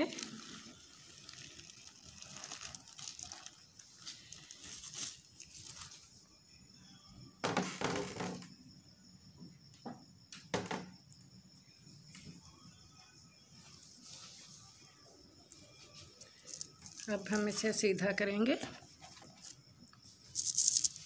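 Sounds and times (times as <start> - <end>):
paper crinkling and rustling: 0.0 - 6.2.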